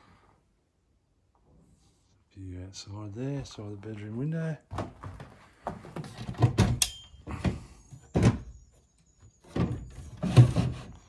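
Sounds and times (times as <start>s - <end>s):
wooden thunks and knocks: 4.7s - 8.6s.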